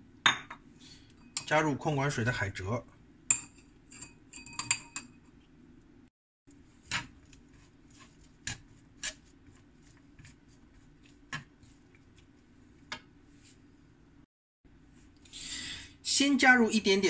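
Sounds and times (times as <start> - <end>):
chopsticks tossing food in a pan: 6.5 - 13.6.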